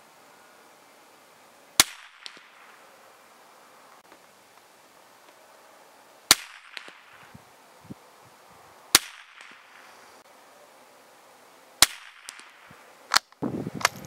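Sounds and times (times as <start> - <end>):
rifle shots cracking: 1.8 - 2.8, 6.3 - 7.3, 8.9 - 9.8, 11.8 - 13.3.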